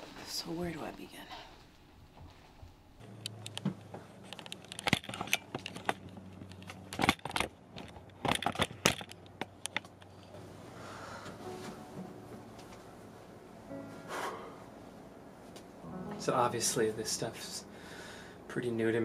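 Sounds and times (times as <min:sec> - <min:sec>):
low steady hum: 0:00.0 - 0:19.0
camera handling clicks and scrapes: 0:04.3 - 0:09.9.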